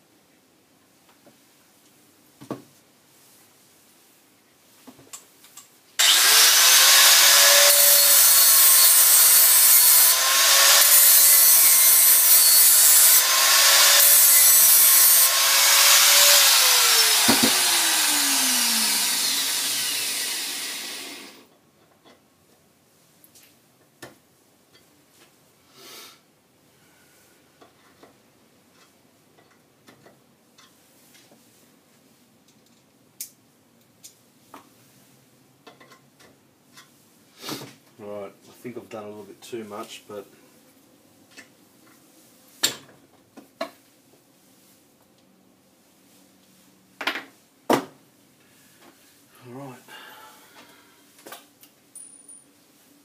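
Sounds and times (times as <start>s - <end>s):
motor winding down: 6.0s - 7.9s, 15.3s - 21.4s
grinder grinding metal: 6.0s - 21.4s.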